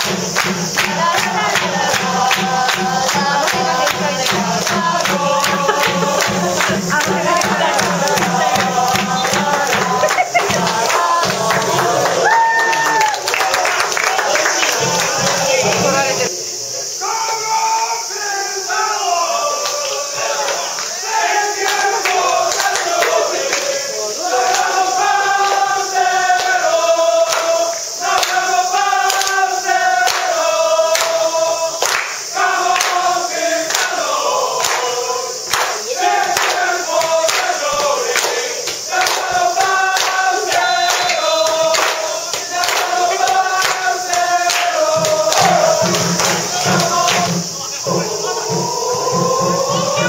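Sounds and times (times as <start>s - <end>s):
steady beat: 0.0s - 12.5s, 14.2s - 16.3s, 36.0s - 50.0s
football supporters chanting: 0.0s - 50.0s.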